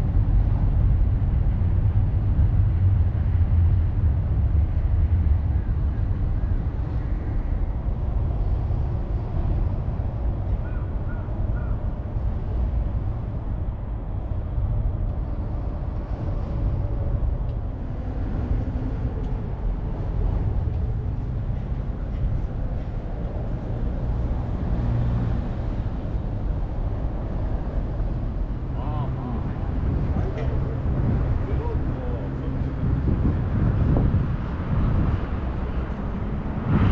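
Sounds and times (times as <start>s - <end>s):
low street rumble: 0.0s - 36.9s.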